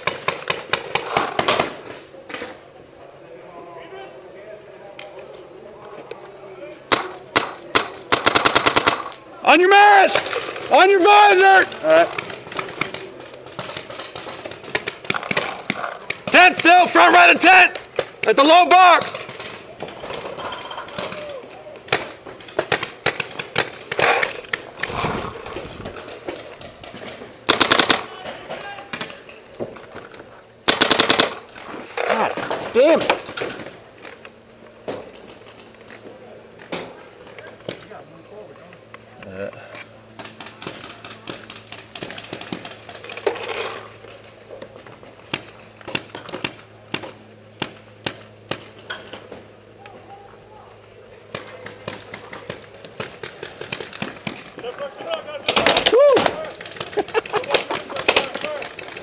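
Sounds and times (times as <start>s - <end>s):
paintball markers firing: 0.0s - 2.5s, 6.9s - 9.2s, 11.6s - 28.3s, 30.7s - 33.7s, 40.2s - 43.4s, 45.3s - 49.2s, 51.3s - 59.0s.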